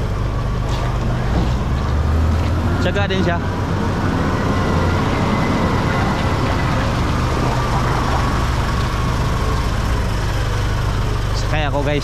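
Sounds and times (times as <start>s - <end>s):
diesel engine droning: 0.0s - 12.0s.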